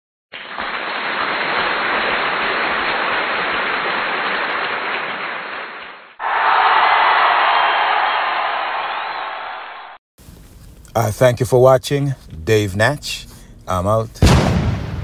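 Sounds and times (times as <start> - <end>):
applause: 0.4 - 10.0
crowd cheering: 0.7 - 10.0.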